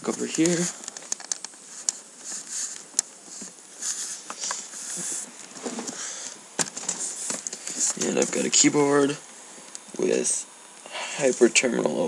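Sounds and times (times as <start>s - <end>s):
footsteps: 0.0s - 6.0s, 6.6s - 8.6s
sharp clicks: 0.4s - 2.0s.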